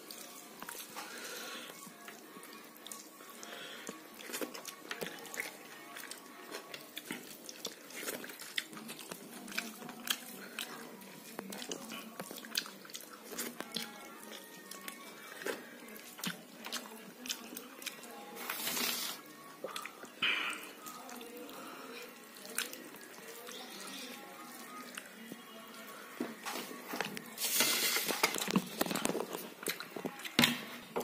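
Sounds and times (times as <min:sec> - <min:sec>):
chewing and wet mouth clicks: 0:02.0 - 0:18.1, 0:19.6 - 0:21.4, 0:22.4 - 0:25.2.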